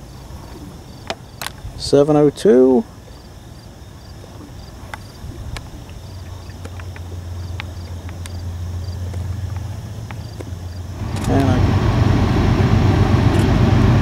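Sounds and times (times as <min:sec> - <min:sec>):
faint insect chirps: 0:00.0 - 0:11.6
distant diesel train humming: 0:06.2 - 0:14.0.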